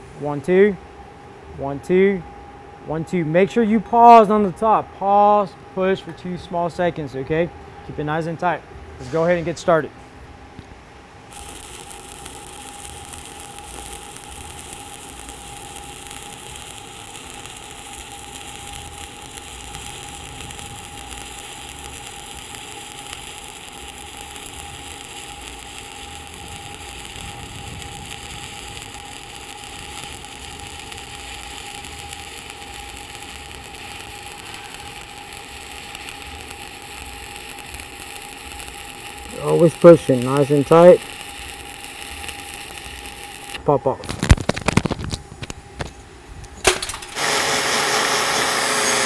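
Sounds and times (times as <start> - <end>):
faint steady whine: 0.0 - 49.0
welding arc sizzling: 11.2 - 49.0.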